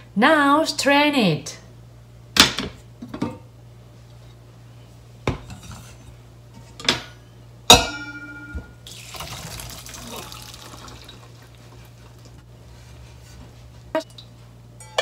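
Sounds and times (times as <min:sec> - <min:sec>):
water pouring into strainer: 0:08.9 - 0:12.3
ringing metal clink: 0:14.8 - 0:15.0.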